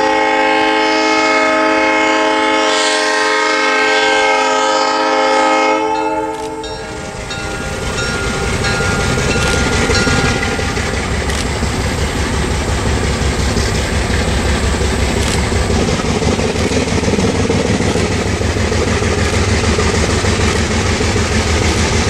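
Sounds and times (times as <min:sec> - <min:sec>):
locomotive air horn: 0:00.0 - 0:10.8
locomotive engine rumble: 0:05.8 - 0:22.0.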